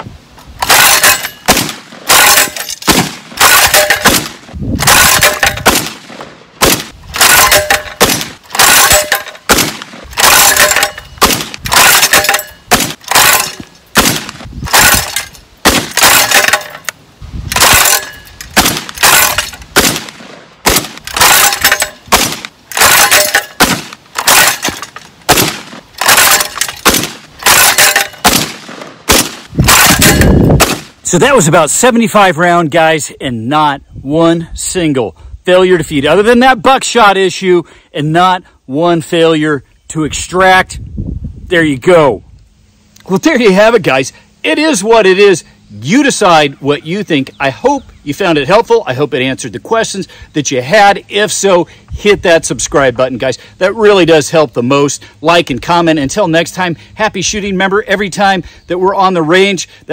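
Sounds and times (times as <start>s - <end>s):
shotgun shots: 0.6s - 16.8s, 17.5s - 31.0s.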